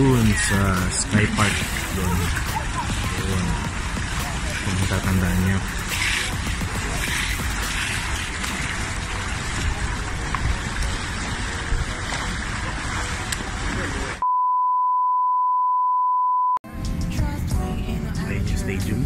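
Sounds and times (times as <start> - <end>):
pool water moving: 0.0 - 14.2
electronic beep tone: 14.2 - 16.6.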